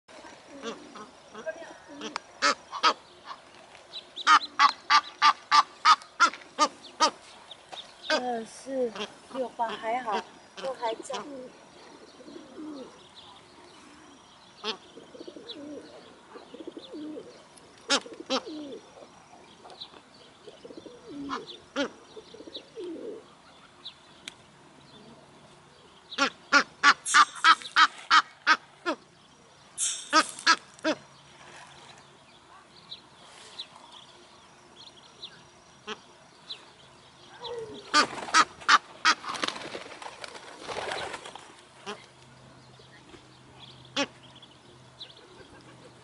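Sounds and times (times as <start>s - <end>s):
geese calling: 0.6s - 3.4s, 4.2s - 7.3s, 26.1s - 29.0s
geese honking harshly: 26.2s - 29.0s.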